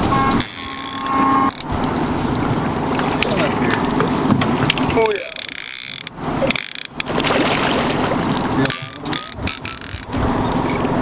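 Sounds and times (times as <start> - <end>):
fishing reel buzzing and ratcheting: 0.4 - 1.7, 5.0 - 7.1, 8.6 - 10.2.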